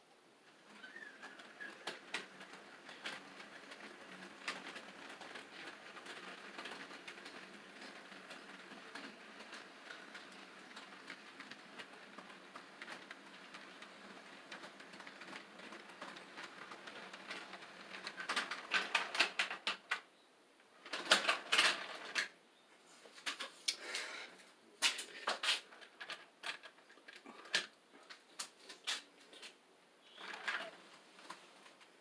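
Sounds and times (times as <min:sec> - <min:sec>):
wheels clicking over track joints: 0:00.5 - 0:20.1, 0:20.8 - 0:22.4, 0:24.8 - 0:32.0
model train running noise: 0:00.7 - 0:19.5.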